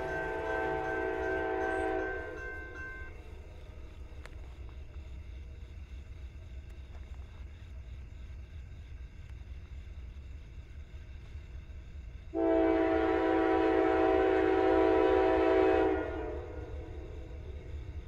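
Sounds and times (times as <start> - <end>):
locomotive air horn chord: 0.0 - 2.4, 12.4 - 16.9.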